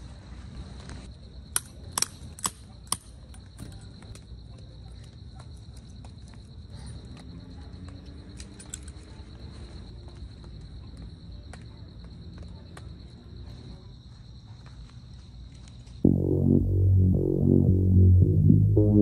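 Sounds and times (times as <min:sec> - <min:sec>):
low rumble: 0:16.0 - 0:19.0.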